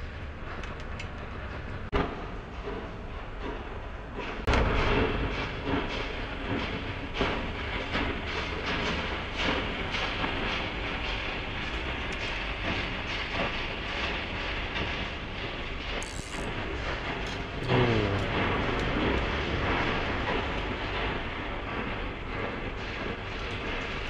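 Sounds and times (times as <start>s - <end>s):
steady rumbling: 3.9s - 24.0s
falling pitched tone: 17.6s - 18.5s.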